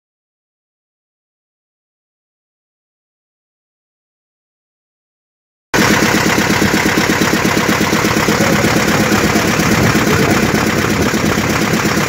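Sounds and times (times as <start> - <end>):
boat engine knocking: 5.8 - 12.0.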